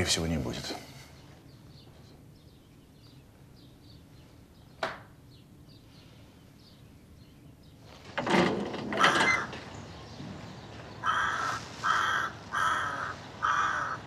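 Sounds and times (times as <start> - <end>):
crow cawing loudly: 9.0 - 9.5, 11.0 - 14.0.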